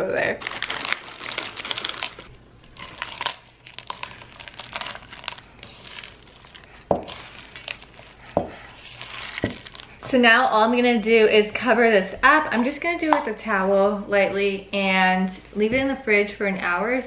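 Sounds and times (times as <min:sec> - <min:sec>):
chocolate chips rattling into metal bowl: 0:00.4 - 0:10.0
spatula stirring cookie dough: 0:02.8 - 0:10.2.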